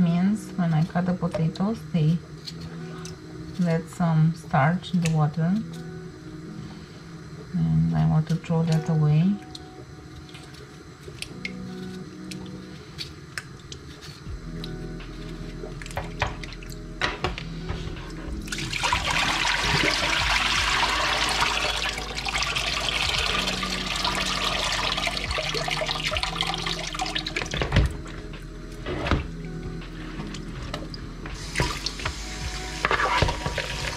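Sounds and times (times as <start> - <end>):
water splashing into sink: 18.5 - 27.9.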